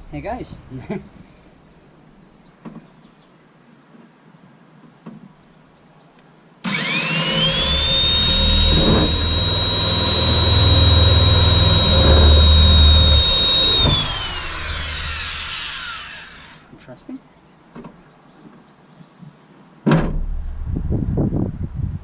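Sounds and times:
power drill motor whine: 6.6 - 16.6
hole saw grinding metal: 6.7 - 16.6.

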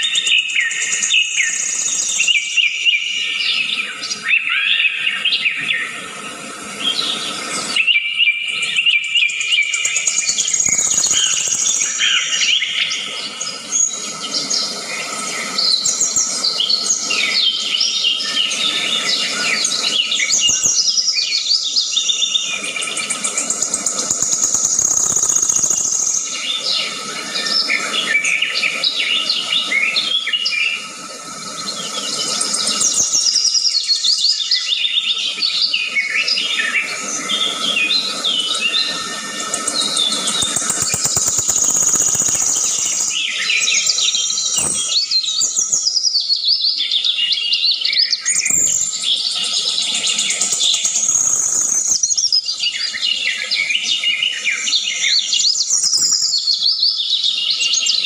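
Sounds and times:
birds chirping: 0.0 - 6.0, 8.6 - 35.4, 36.3 - 47.2, 47.9 - 56.9
high insect hum: 0.2 - 2.7, 9.7 - 27.9, 31.3 - 34.3, 38.0 - 46.1, 48.4 - 52.6.

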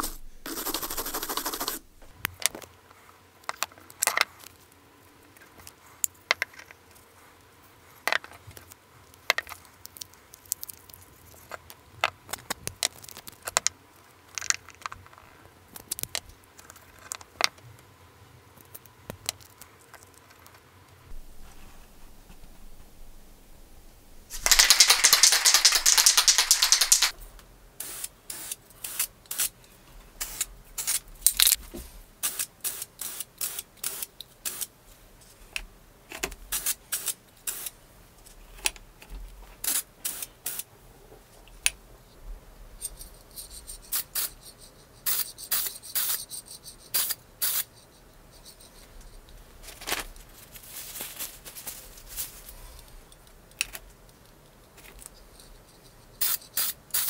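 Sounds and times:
spray paint can hissing: 0.0 - 2.0, 24.3 - 27.2, 27.8 - 29.6, 30.2 - 31.0, 32.2 - 34.7, 36.5 - 37.7, 39.6 - 40.6, 43.8 - 47.7, 56.2 - 57.0
sharp clicks and rattles: 24.3 - 27.2.

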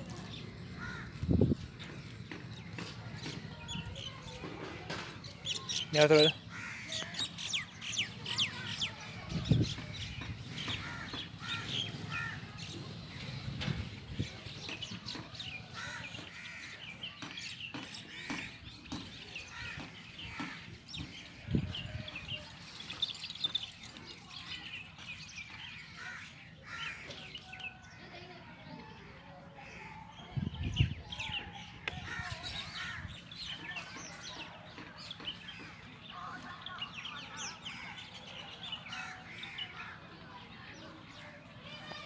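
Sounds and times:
birds chirping: 0.0 - 42.0
crow cawing: 0.8 - 1.1, 6.5 - 7.1.

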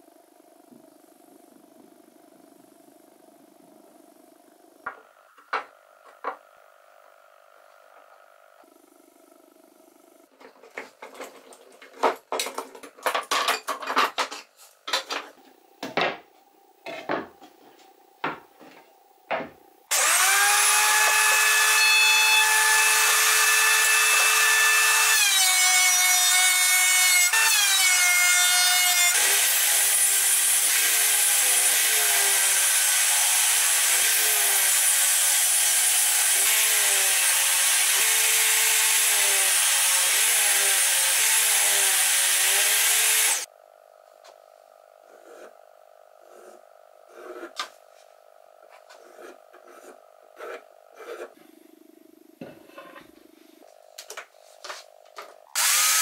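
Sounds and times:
thickness planer running: 19.9 - 25.0, 55.0 - 56.0.

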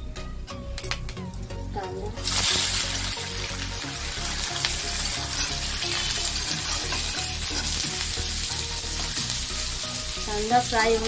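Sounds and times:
metal spatula scraping: 2.2 - 10.1
onions sizzling in hot oil: 2.2 - 11.0.

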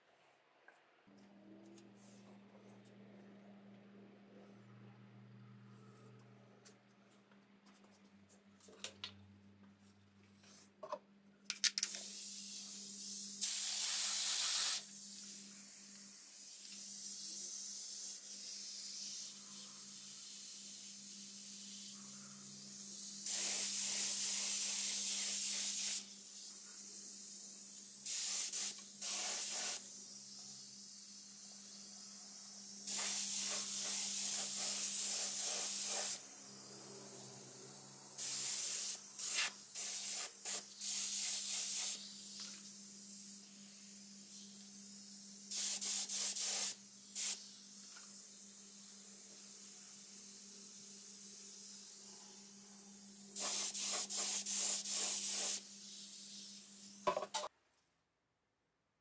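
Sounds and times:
paint spray gun hissing: 11.8 - 37.2, 38.2 - 52.1, 53.4 - 57.0.

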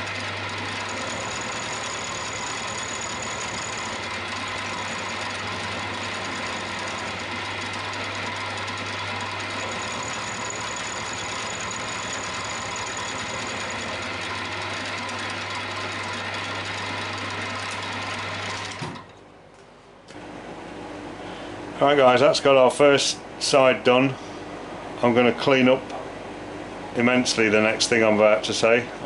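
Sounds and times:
milling machine cutting steel: 0.0 - 18.8.

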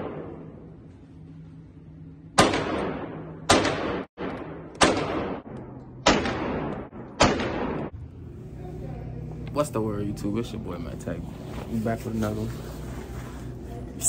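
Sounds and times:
handgun shots echoing indoors: 2.4 - 8.0.

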